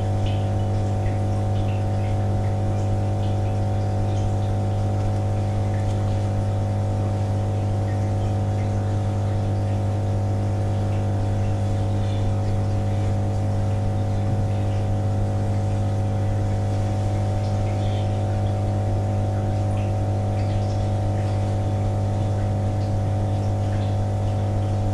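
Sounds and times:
mechanical equipment hum: 0:00.0 - 0:24.9.

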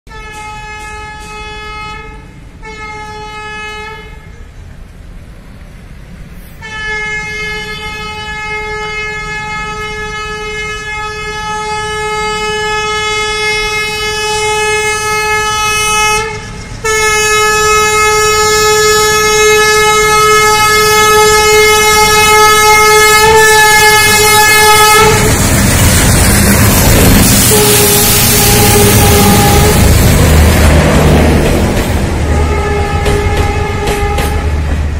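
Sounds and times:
locomotive horn blasts: 0:00.1 - 0:04.4, 0:06.6 - 0:25.4, 0:27.3 - 0:30.0, 0:32.2 - 0:34.6
train passing close by: 0:00.1 - 0:34.9.

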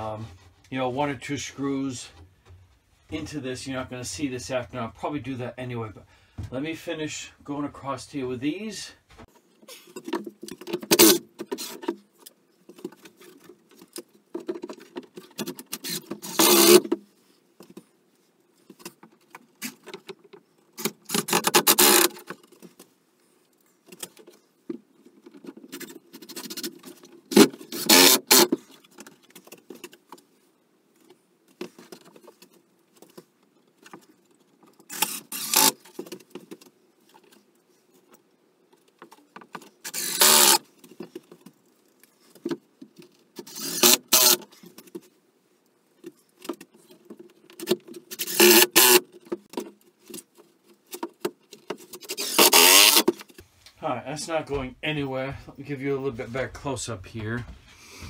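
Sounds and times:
clicks and handling noises: 0:09.1 - 0:53.8
cordless drill driving screws: 0:15.8 - 0:16.8, 0:21.2 - 0:22.1, 0:27.8 - 0:28.5, 0:34.9 - 0:35.8, 0:39.8 - 0:40.6, 0:43.5 - 0:44.4, 0:48.2 - 0:49.0, 0:52.1 - 0:53.1.

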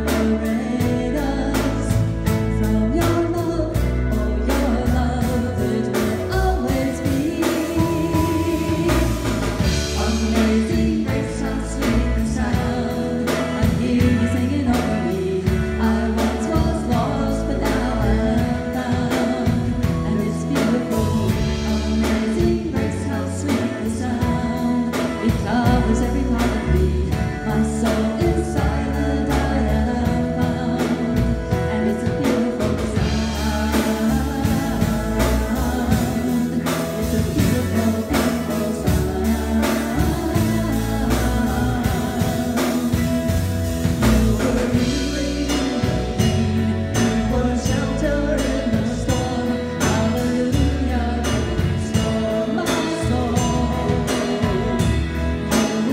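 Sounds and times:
person singing lead vocals: 0:00.0 - 0:55.9
worship band playing: 0:00.0 - 0:55.9.

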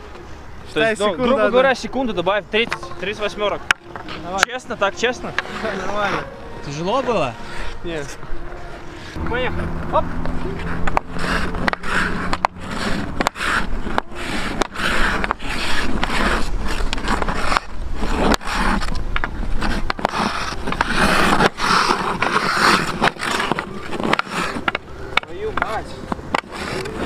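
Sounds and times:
stick and puck scraping: 0:00.0 - 0:27.0
stick blade tapping puck: 0:05.2 - 0:05.7, 0:10.2 - 0:27.0.

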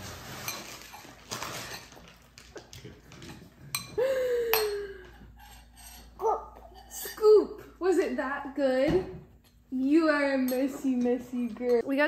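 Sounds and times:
spoon scraping a bowl: 0:05.3 - 0:07.3.

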